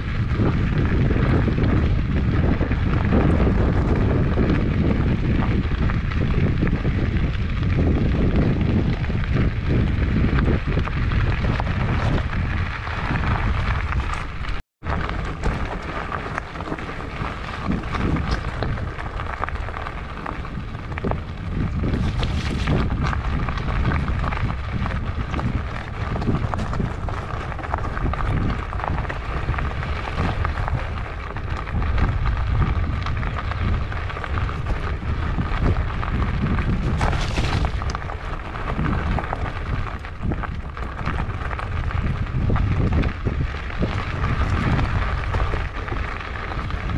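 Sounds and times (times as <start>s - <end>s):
tyres rolling over gravel: 0.0s - 46.9s
wind buffeting camera: 0.0s - 46.9s
bike knocking over stones: 7.8s - 46.9s.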